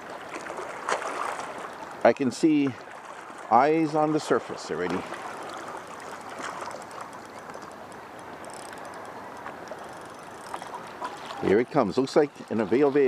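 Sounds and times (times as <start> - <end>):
water lapping gently: 0.0 - 13.0
faint light ticks: 6.1 - 11.4.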